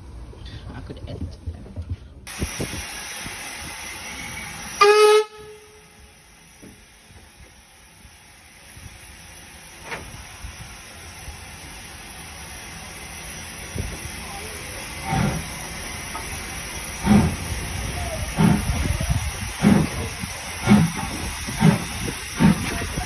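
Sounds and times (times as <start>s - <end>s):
hiss of escaping steam: 2.3s - 23.0s
steam locomotive whistle blast: 4.0s - 6.2s.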